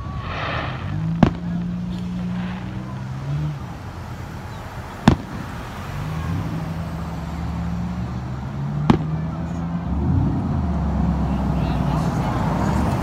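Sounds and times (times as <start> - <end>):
firework bang: 0.0 - 3.8, 5.0 - 5.6
car engine hum: 0.0 - 13.0.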